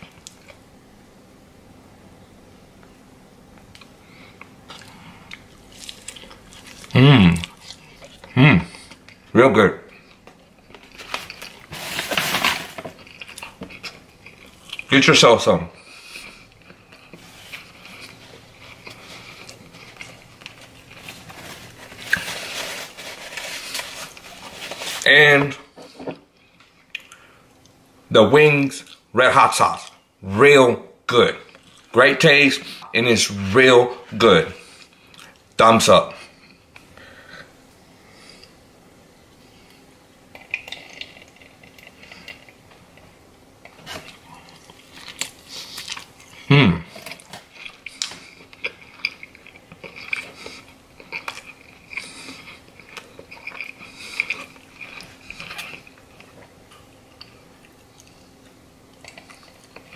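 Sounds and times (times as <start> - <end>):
person chewing: 3.6 - 9.3, 13.0 - 14.9, 15.8 - 24.6, 34.6 - 35.5, 40.3 - 59.9.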